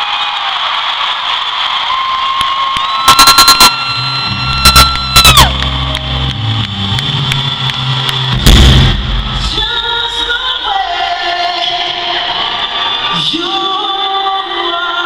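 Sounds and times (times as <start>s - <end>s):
crowd cheering: 0.0s - 14.7s
cymbal crash: 8.4s - 9.7s
person singing: 9.4s - 15.0s.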